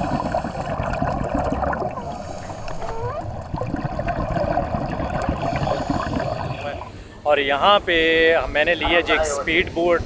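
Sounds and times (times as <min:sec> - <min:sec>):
underwater gurgling and bubbling: 0:00.0 - 0:07.1.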